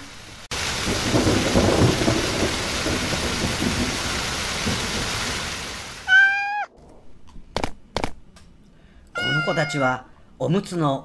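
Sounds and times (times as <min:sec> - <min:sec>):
heavy rain: 0:00.0 - 0:07.7
low rumble of thunder: 0:00.6 - 0:05.5, 0:06.7 - 0:08.4
short high-pitched cry: 0:06.1 - 0:06.7, 0:09.2 - 0:10.0.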